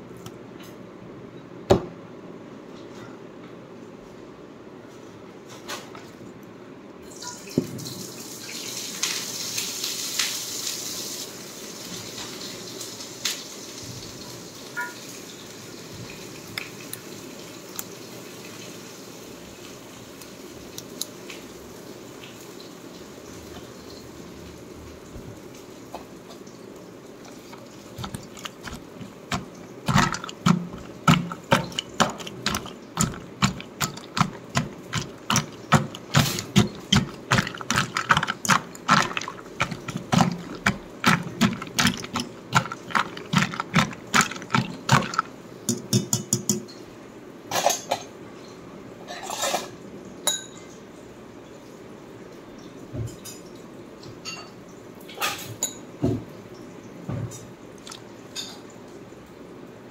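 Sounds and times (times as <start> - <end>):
utensil knocking against dish: 27.4 - 46.6.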